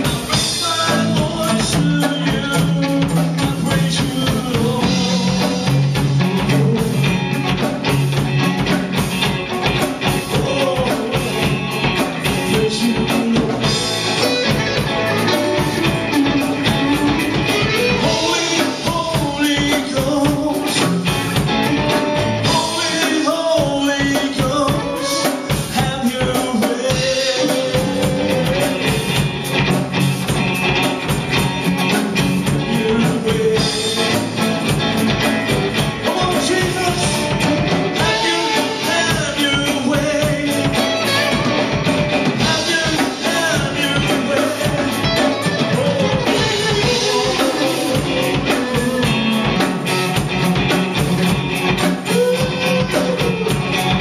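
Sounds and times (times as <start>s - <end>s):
man singing into microphone: 0.0s - 7.2s, 10.2s - 14.8s, 15.4s - 21.3s, 22.4s - 29.1s, 32.6s - 34.3s, 36.0s - 41.5s, 42.4s - 49.4s, 52.0s - 53.6s
drums: 0.0s - 54.0s
electric guitar strumming: 0.0s - 54.0s.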